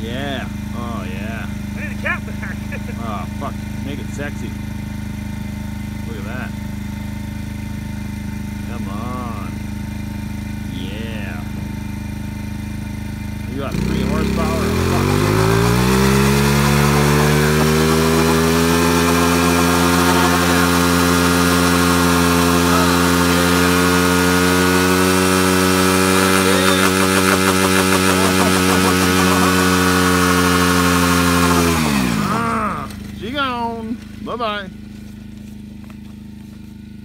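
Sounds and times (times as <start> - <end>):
small engine at full throttle: 0.0 - 37.0
wheels spinning in dirt: 13.7 - 37.0.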